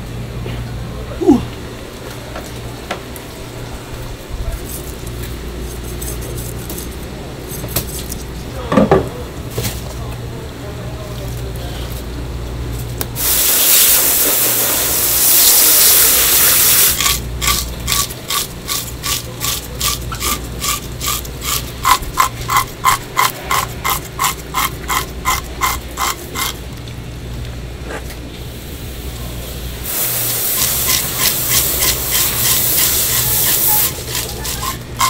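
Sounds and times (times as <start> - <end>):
loud steady hiss: 13.1 - 19.6, 28.4 - 35.0
fish scaler scraping scales: 16.6 - 26.6, 30.0 - 35.0.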